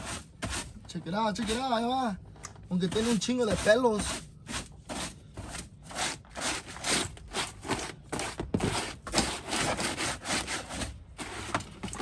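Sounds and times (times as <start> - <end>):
broom sweeping carpet: 2.9 - 5.4.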